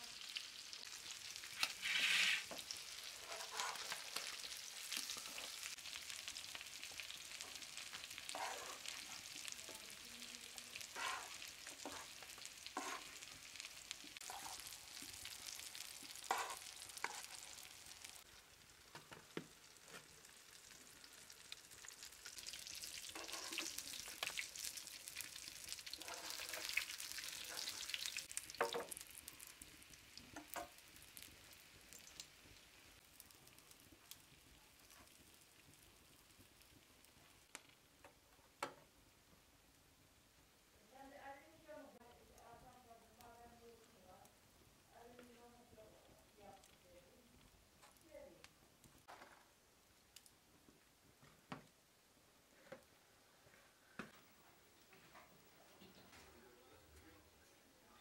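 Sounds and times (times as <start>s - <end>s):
fish sizzling in frying oil: 0.0s - 37.8s.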